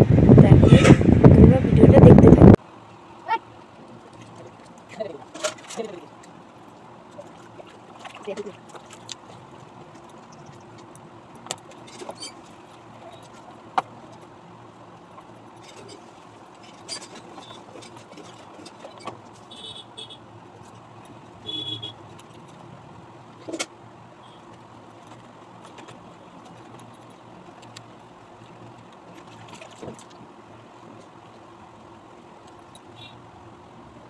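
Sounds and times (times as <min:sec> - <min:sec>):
short high-pitched squeaks: 0:16.7 - 0:17.7.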